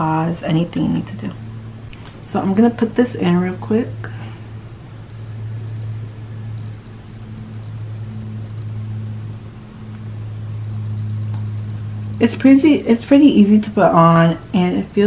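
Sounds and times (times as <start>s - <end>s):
steady low hum: 0.0s - 15.0s
faint higher tone: 3.4s - 12.8s.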